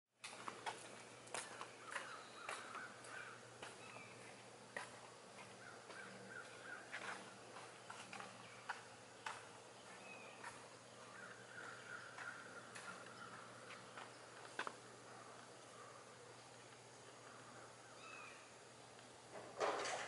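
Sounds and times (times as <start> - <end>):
low steady hum: 0.2 - 20.0
distant animal call: 1.7 - 4.2, 17.2 - 18.6.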